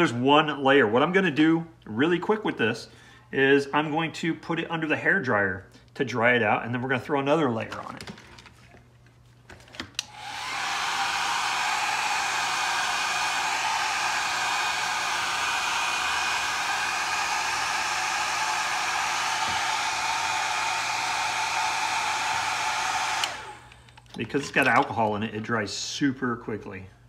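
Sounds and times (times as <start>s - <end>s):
hair dryer switch click: 10.0s - 10.5s, 22.2s - 24.0s
hair dryer blowing: 10.0s - 23.9s.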